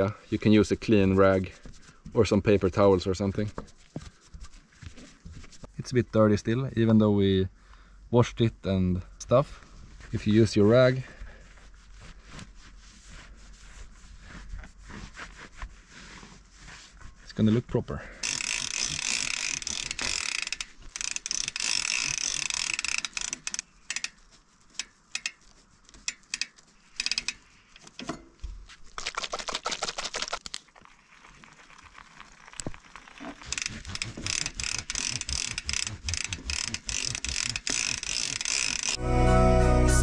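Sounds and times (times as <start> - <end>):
bicycle chain running over cassette: 18.2 - 27.5, 33.1 - 39.0
bicycle freehub ratcheting clicks: 18.2 - 28.0, 33.2 - 39.0.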